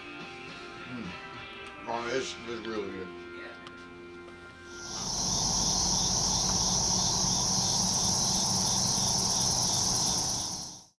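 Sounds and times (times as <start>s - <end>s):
crickets and night insects trilling: 4.8s - 11.0s.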